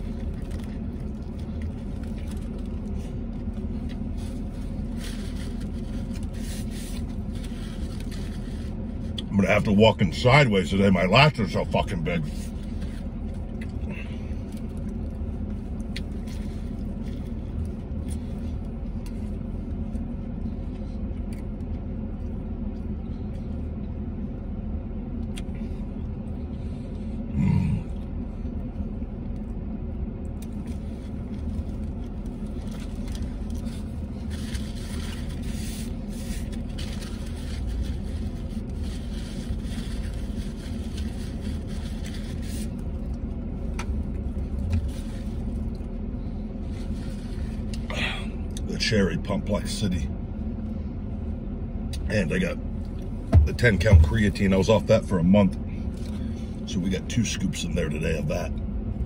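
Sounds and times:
person chewing: 0:00.0 - 0:09.3, 0:12.6 - 0:23.6
sandwich wrapper crinkling: 0:00.0 - 0:09.3, 0:12.3 - 0:22.8, 0:30.3 - 0:46.0
vehicle cabin hum: 0:00.0 - 0:59.0.

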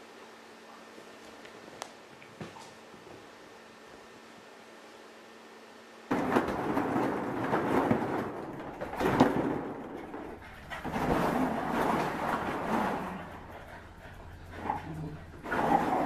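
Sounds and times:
dogs scuffling in ball pit: 0:06.1 - 0:16.0.

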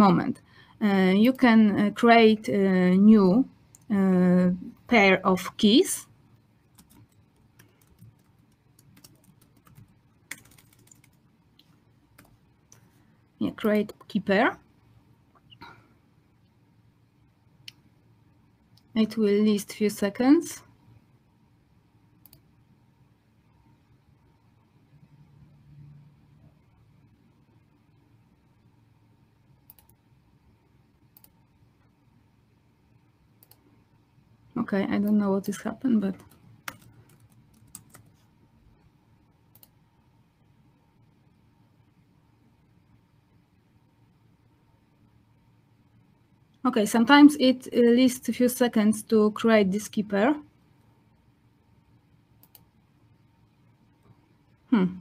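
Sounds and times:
typing on computer keyboard: 0:06.6 - 0:11.3, 0:12.2 - 0:12.4, 0:29.7 - 0:30.0, 0:36.1 - 0:38.2
faint mouse clicks: 0:06.7 - 0:12.9, 0:22.2 - 0:22.5, 0:29.6 - 0:30.0, 0:31.1 - 0:32.0, 0:33.4 - 0:33.7, 0:39.5 - 0:39.8, 0:52.4 - 0:52.7.

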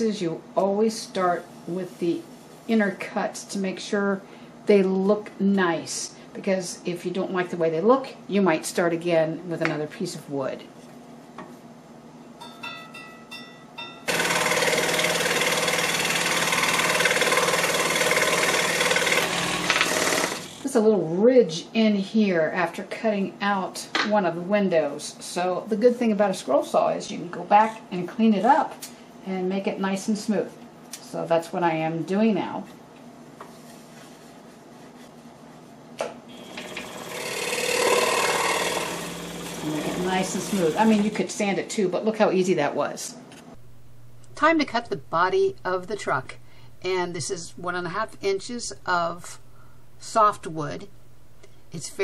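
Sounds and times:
scroll saw cutting wood: 0:14.1 - 0:20.6, 0:36.4 - 0:41.2
faint hum: 0:43.6 - 0:52.0.

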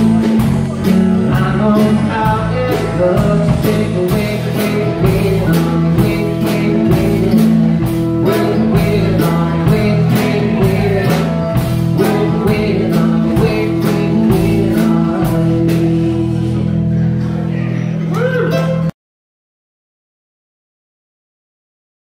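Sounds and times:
drum kit beat: 0:00.0 - 0:16.7
person singing lead vocal: 0:00.0 - 0:16.7
electric bass: 0:00.0 - 0:18.9
strummed acoustic guitar: 0:00.0 - 0:18.9.

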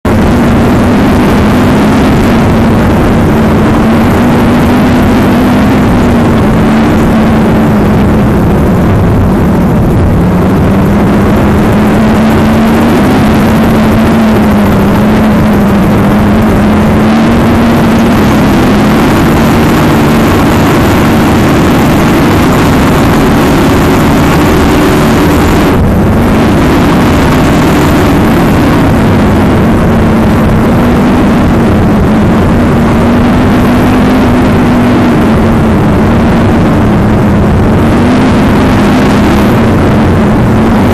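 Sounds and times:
powerboat engines running hard: 0:00.0 - 0:40.9
rush of wind and water: 0:00.1 - 0:40.9.

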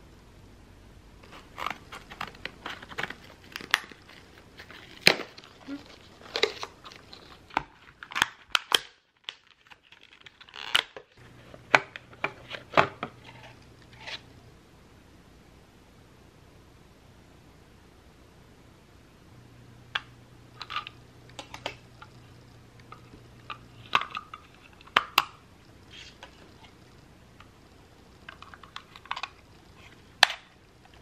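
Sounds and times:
plastic packaging crinkling and snapping: 0:01.2 - 0:13.4.

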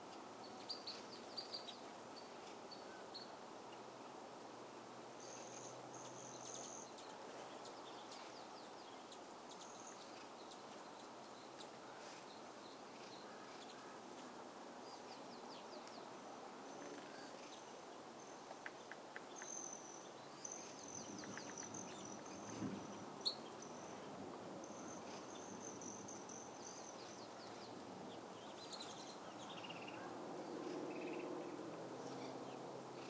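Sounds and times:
small birds chirping: 0:00.0 - 0:03.9, 0:05.2 - 0:33.0.

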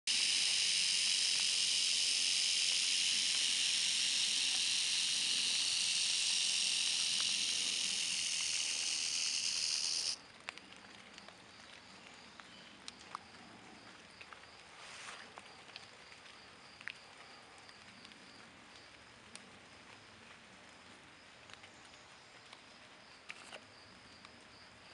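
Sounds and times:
rattlesnake rattling: 0:00.1 - 0:10.2.

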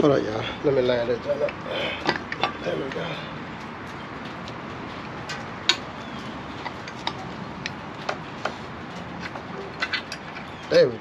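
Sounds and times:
sharp metal clicks and taps: 0:06.6 - 0:10.8.

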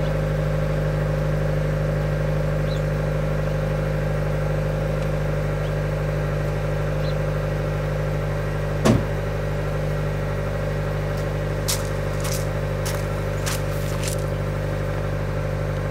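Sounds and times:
car engine idling: 0:00.0 - 0:15.9
footsteps on gravel: 0:11.1 - 0:14.7.

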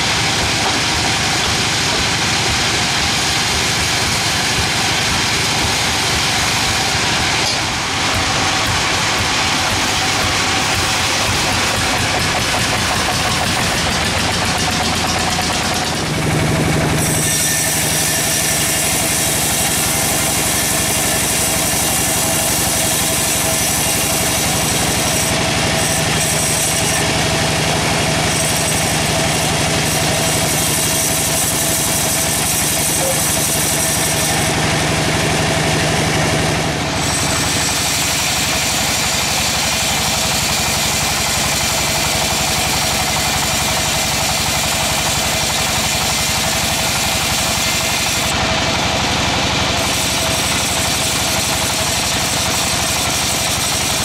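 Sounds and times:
band saw cutting log: 0:00.0 - 0:54.0
machine drone with high hiss: 0:00.0 - 0:54.0.

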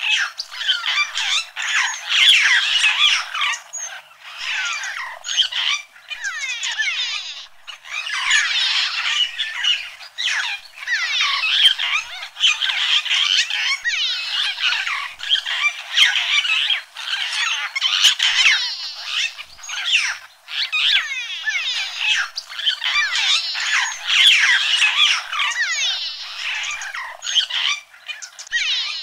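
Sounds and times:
chorus of animal calls: 0:00.0 - 0:29.0.

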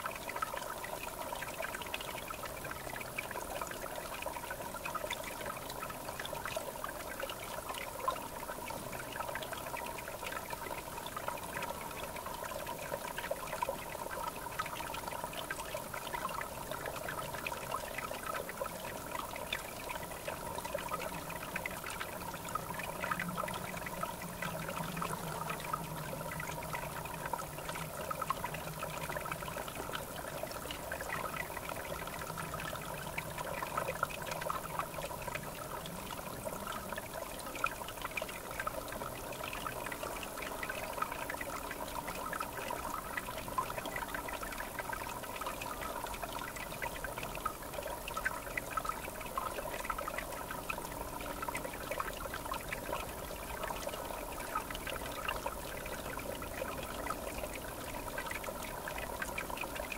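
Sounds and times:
river water babbling: 0:00.0 - 0:59.9.

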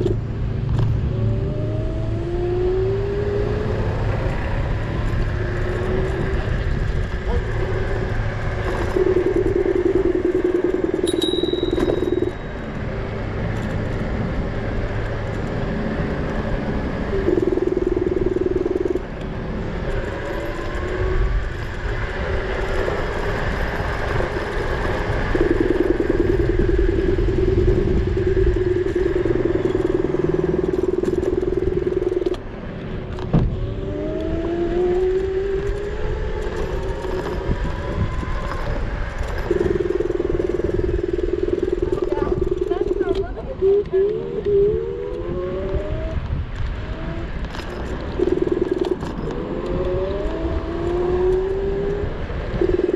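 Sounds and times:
wind: 0:00.0 - 0:52.9
electric scooter motor whining: 0:01.0 - 0:52.9.

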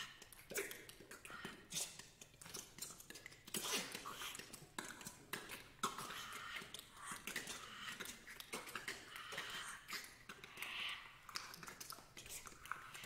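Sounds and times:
mouth clicks: 0:00.0 - 0:13.0
breathy whispery hisses: 0:05.9 - 0:11.3.

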